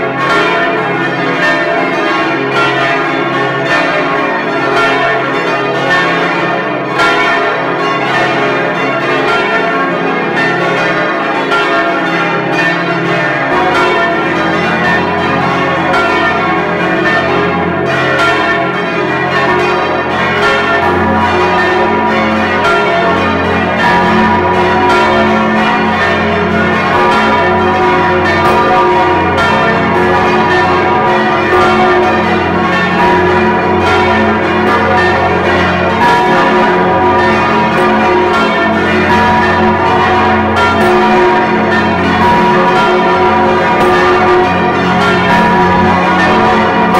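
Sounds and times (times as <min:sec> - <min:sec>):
church bell ringing: 0:00.0 - 0:46.9.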